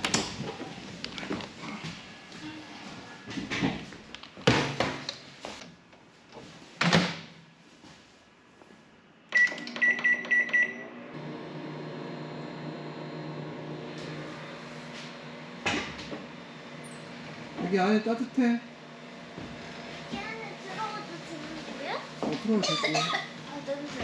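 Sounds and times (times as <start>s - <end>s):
microwave keypad beeps: 9.4s - 10.8s
microwave oven humming: 9.4s - 21.3s.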